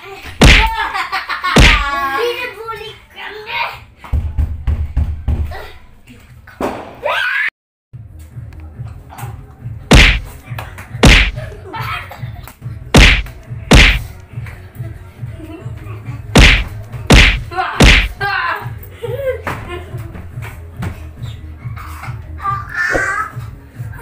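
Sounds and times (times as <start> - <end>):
loud slapping hits: 0.4 - 0.8, 1.6 - 1.9, 9.9 - 10.3, 11.0 - 11.4, 13.0 - 14.1, 16.4 - 18.2.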